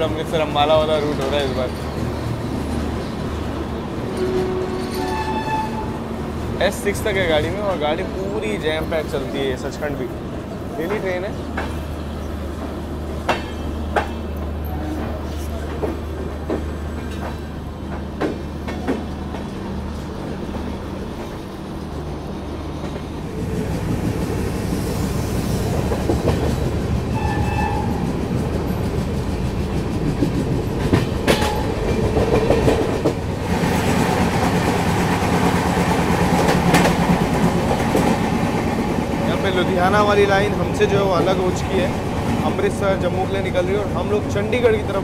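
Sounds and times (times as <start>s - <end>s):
train wheels clicking over rail joints: 12.6s - 19.8s, 22.8s - 45.0s.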